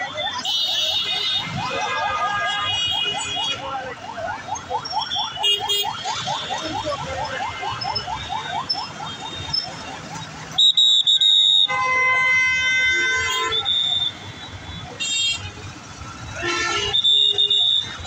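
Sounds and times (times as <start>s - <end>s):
siren-like whoops: 0.0s - 11.7s.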